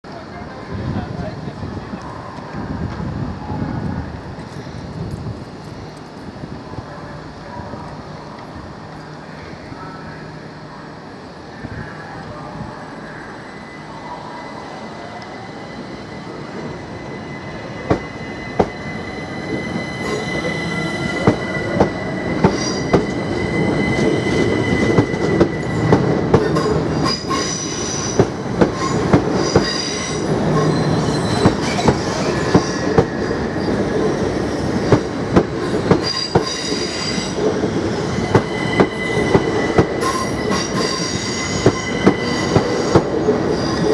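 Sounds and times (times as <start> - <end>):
train pulling away: 4.1 - 43.9
high-pitched wheel squeal: 28.8 - 33.9, 38.1 - 43.9.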